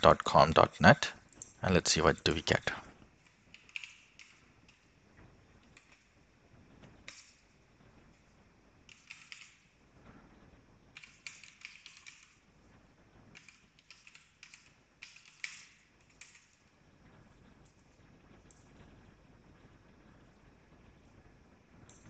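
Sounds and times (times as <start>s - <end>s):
faint computer keyboard typing: 3.2s - 4.9s, 5.6s - 6.2s, 6.8s - 7.4s, 8.0s - 9.8s, 10.9s - 12.4s, 13.3s - 16.7s.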